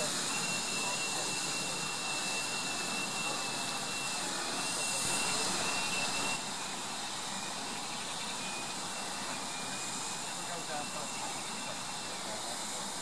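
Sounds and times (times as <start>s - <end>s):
thin high whistle: 0.0s - 12.9s
steam hissing: 0.0s - 13.0s.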